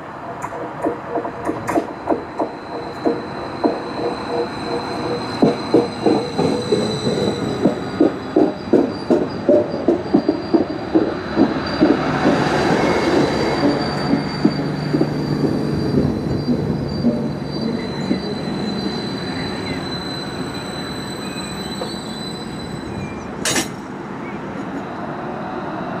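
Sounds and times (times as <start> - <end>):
train wheels clattering over joints: 0.3 - 19.9, 22.9 - 24.0
high-pitched wheel squeal: 2.4 - 23.6.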